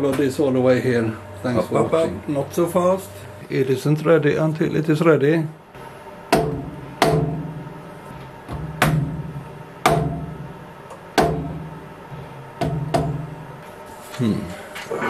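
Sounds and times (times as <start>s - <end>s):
steady low hum: 0.0s - 15.0s
sharp ringing knocks: 9.8s - 10.4s.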